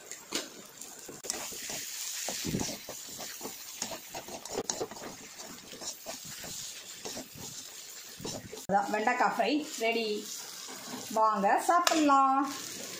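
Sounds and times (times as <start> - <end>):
okra sizzling in a pan: 0.0 - 12.9
spatula scraping metal pan: 1.2 - 9.3.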